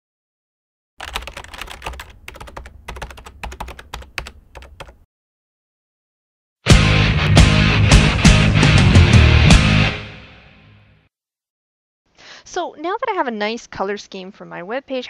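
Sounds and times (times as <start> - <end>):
computer keyboard typing: 1.0 - 5.0.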